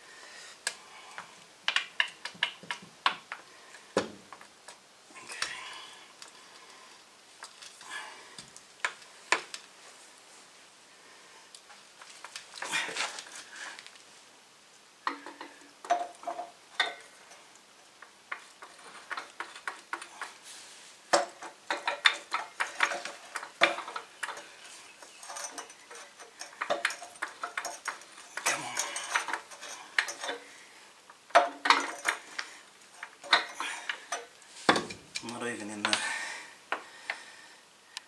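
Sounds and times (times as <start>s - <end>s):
metallic clanks and scrapes: 21.2s - 30.5s, 31.3s - 35.0s.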